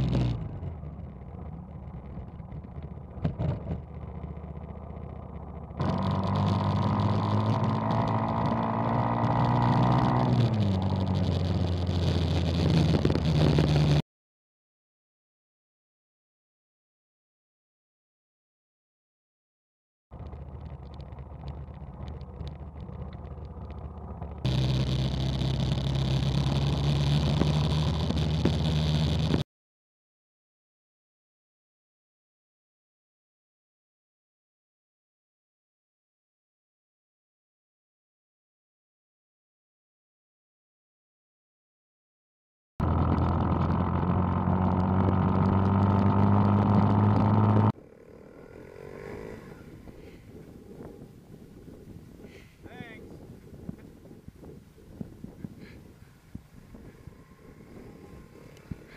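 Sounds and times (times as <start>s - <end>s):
mini bike engine running: 0.0s - 14.0s, 20.2s - 29.4s, 42.8s - 51.2s, 56.6s - 58.9s
wind and road rush: 0.0s - 14.0s, 20.2s - 29.4s, 42.8s - 58.9s.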